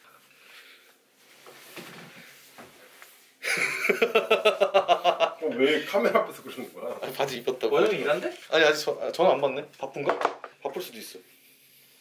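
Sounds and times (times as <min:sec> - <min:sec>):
faint rustling: 0:00.1 - 0:03.4
man laughing loudly: 0:03.4 - 0:05.4.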